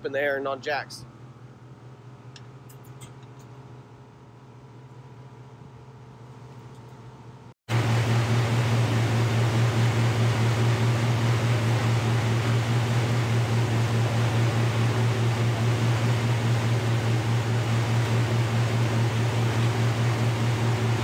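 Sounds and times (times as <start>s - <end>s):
machine humming with hiss: 6.2s - 21.0s.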